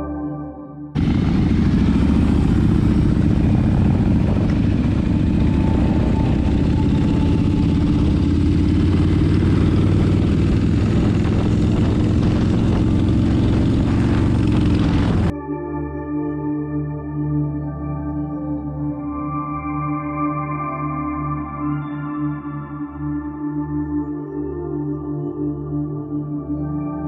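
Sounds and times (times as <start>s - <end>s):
motorcycle engines rumbling: 1.0s - 15.3s
road noise: 1.0s - 15.3s.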